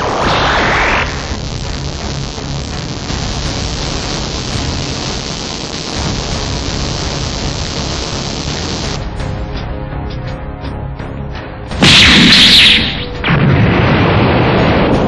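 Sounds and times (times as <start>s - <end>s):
static hiss: 0.0s - 9.0s
pulsing low rumble: 0.0s - 9.6s
music: 0.0s - 15.0s.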